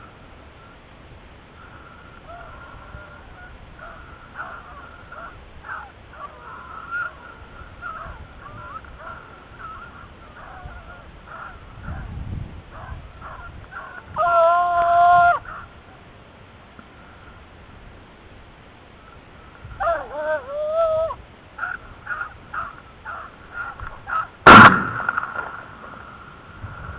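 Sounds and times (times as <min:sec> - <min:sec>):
dogs baying in distance: 0:03.8 - 0:07.1, 0:12.7 - 0:14.1.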